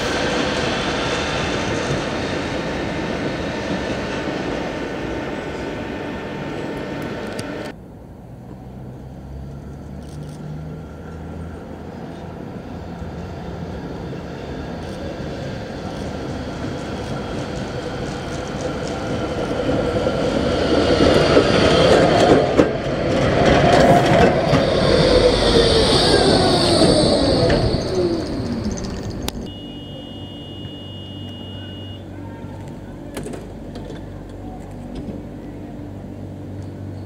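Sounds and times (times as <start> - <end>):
tram wheel and rail noise: 0.0 - 37.0
high whine: 23.4 - 33.2.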